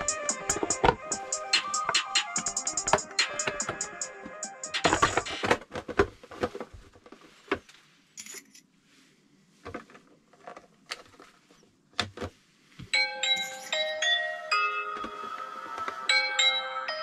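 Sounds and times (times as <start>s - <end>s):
chiming bell-like music: 13.0s - 17.0s.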